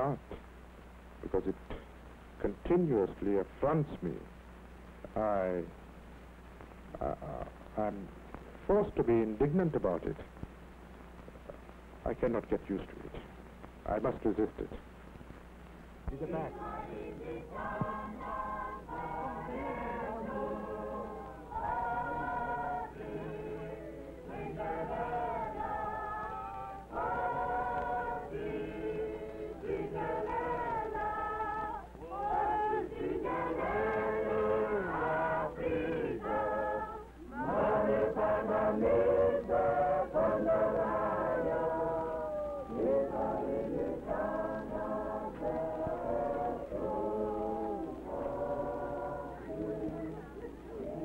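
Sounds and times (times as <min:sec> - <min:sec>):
steady low hum: 0:00.0 - 0:51.0
crowd singing unaccompanied: 0:16.1 - 0:51.0.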